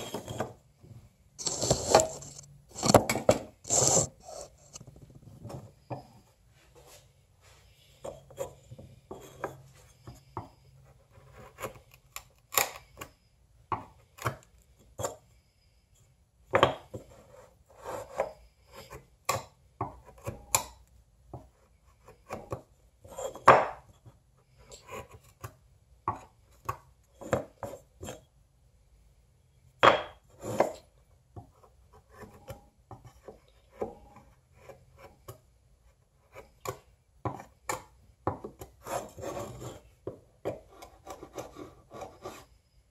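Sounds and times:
wood chisel cutting wood: 1.4 - 4.8, 30.2 - 30.9.

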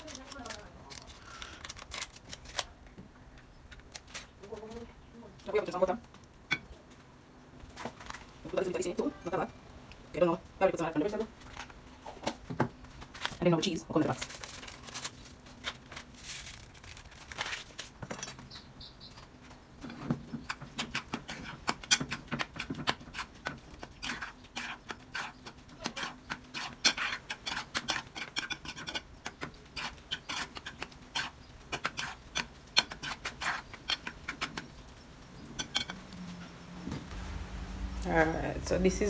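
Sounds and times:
metal spoon scraping a pot: 19.9 - 29.1, 29.7 - 34.6.

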